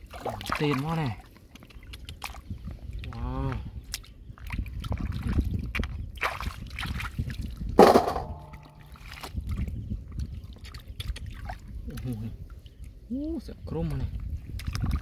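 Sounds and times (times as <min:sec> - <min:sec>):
hands splashing in shallow water: 0:03.9 - 0:09.7.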